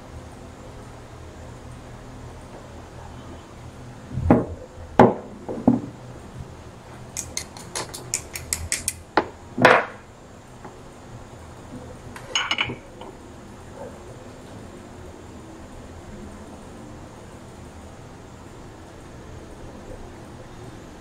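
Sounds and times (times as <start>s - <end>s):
sharp light clicks: 7.2s - 9.0s
metal tools knocking on workbench: 12.2s - 13.0s
tools clattering: 12.2s - 13.1s.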